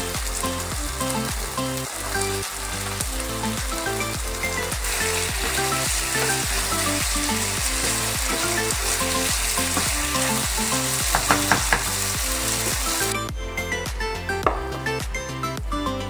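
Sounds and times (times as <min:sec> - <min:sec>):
meat and peppers sizzling in wok: 0:00.0 - 0:13.3
spatula knocking against pan: 0:11.1 - 0:11.9.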